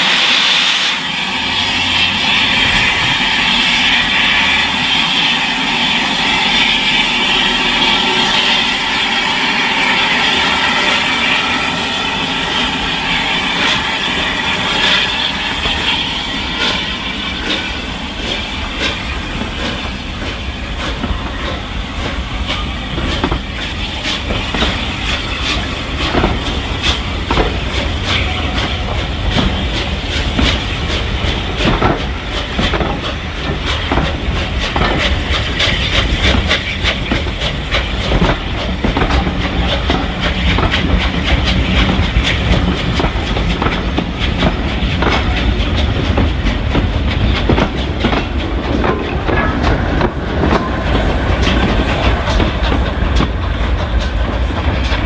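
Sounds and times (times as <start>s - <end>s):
steam locomotive hissing: 0.0s - 55.0s
wheels clicking over rail joints: 20.9s - 55.0s.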